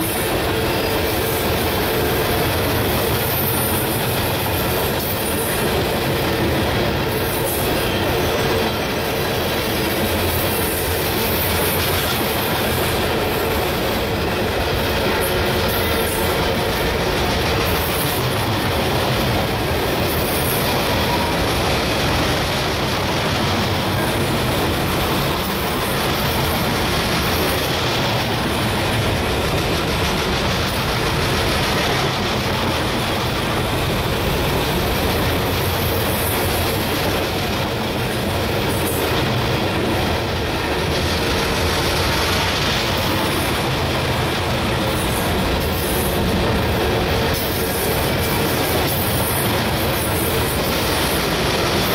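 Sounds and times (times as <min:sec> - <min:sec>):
freight train wheels rumbling on rail: 0:00.0 - 0:51.9.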